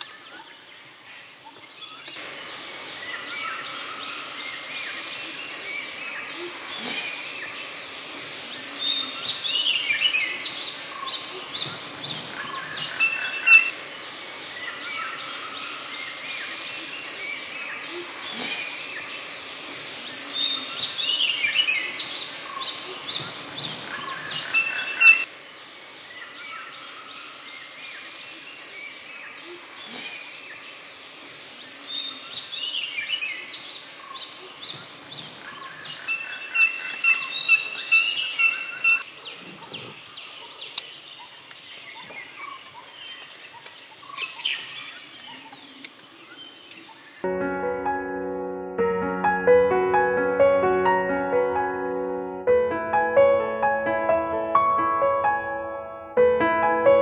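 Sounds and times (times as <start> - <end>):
birds whistling calls: 3.0 - 13.7, 14.5 - 25.3, 31.6 - 47.2.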